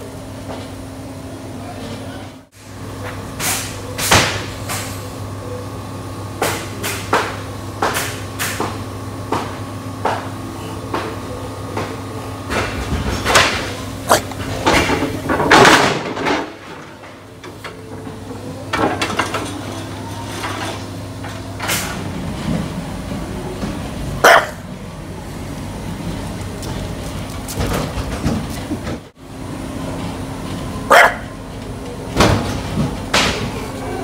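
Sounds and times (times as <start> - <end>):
dogs barking: 13.3 - 14.6, 24.2 - 24.7, 30.8 - 31.5.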